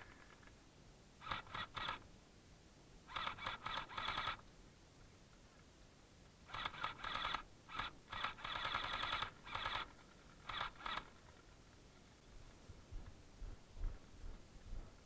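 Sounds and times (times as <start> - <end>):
gel blaster full-auto bursts: 1.2 - 2.0, 3.1 - 4.4, 6.5 - 11.2.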